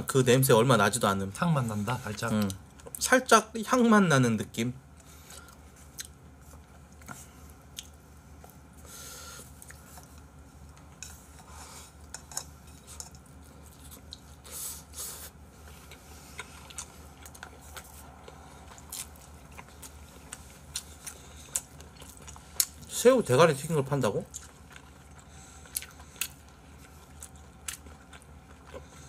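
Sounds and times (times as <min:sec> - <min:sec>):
chewing: 0:05.0 - 0:08.6, 0:15.6 - 0:22.9, 0:24.2 - 0:29.0.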